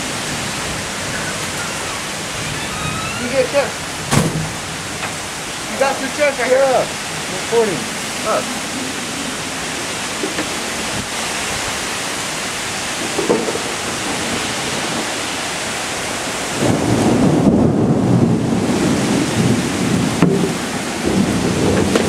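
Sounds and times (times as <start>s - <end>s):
heavy rain pouring: 0.0s - 22.0s
thunder rumbling: 12.9s - 22.0s.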